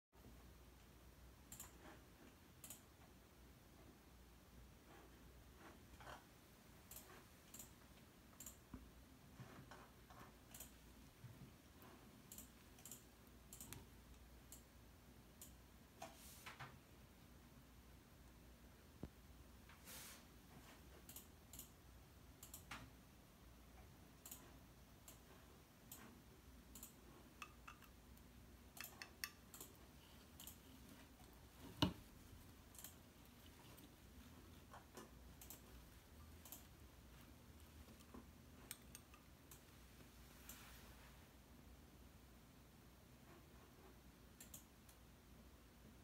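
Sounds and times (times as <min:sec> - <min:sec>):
small clicks and taps: 0:23.8 - 0:40.7.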